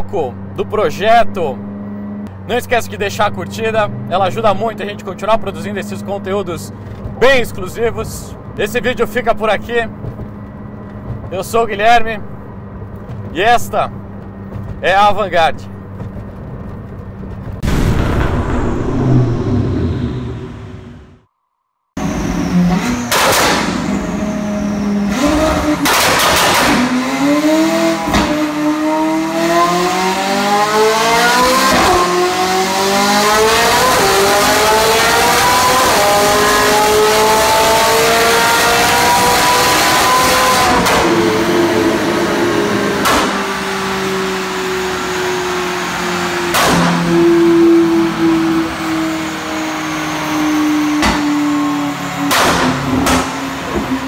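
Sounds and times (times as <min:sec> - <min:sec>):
car engine revving: 0:00.0 - 0:21.3, 0:22.0 - 0:54.0
exhaust cracks: 0:02.2 - 0:21.3, 0:22.0 - 0:30.5, 0:39.2 - 0:49.5.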